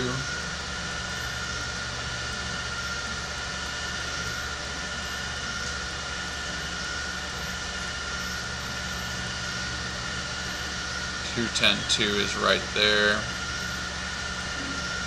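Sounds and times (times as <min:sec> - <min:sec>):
faint high whine: 0:00.0 - 0:15.0
low hum and hiss: 0:00.0 - 0:15.0.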